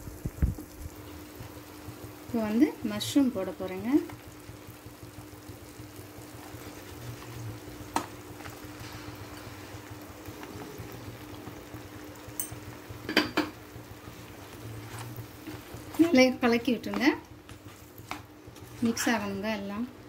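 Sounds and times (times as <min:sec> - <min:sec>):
faint steady hum: 0:00.0 - 0:20.0
paste sizzling in a pan: 0:00.0 - 0:20.0.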